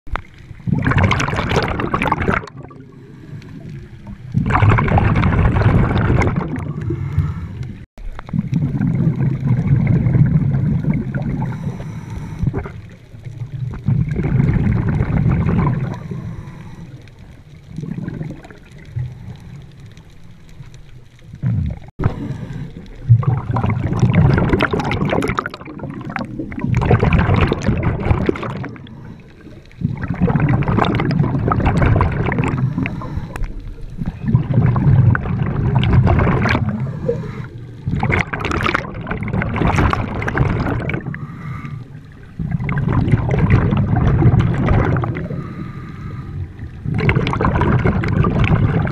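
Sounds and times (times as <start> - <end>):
underwater breathing bubbles: 0.4 - 20.3, 21.2 - 48.9.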